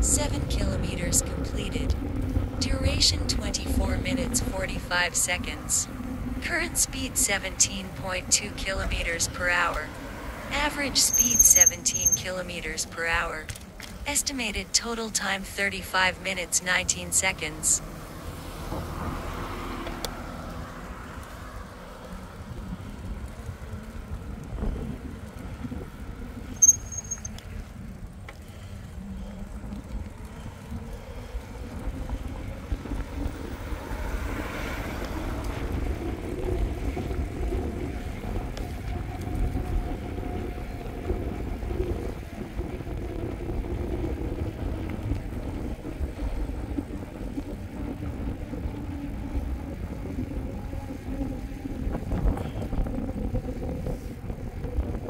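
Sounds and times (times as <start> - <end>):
passing vehicle: 0.0 - 14.8, 16.0 - 55.0
bike tyres rolling: 1.9 - 3.0, 8.8 - 12.2, 13.5 - 14.0, 17.8 - 55.0
short high beep: 11.0 - 12.3, 26.6 - 27.3
wind on microphone: 29.6 - 55.0.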